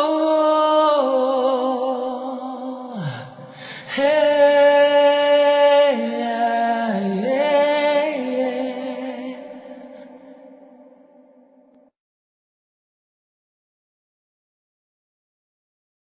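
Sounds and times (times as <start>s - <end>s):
wordless singing with vibrato: 0.0s - 11.6s.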